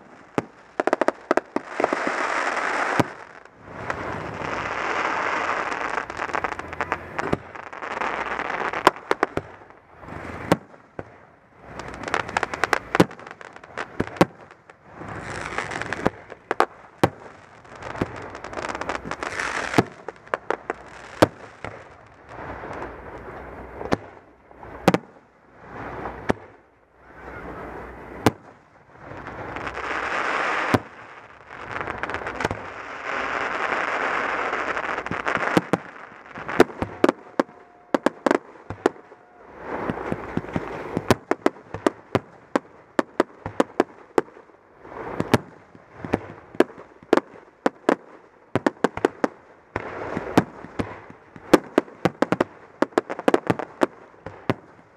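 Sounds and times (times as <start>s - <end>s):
rushing fireworks noise: 0.0s - 54.9s
fireworks shells bursting: 27.3s - 42.4s.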